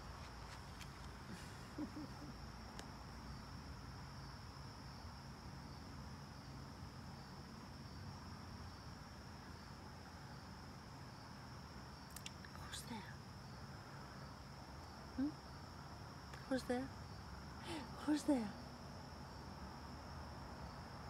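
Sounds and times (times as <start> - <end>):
insects droning: 0.0 - 21.0.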